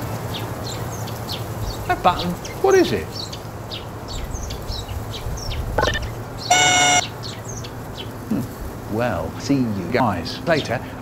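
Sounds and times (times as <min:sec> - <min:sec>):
birds chirping: 0:00.3 - 0:08.1
electronic buzzer tone: 0:05.8 - 0:07.0.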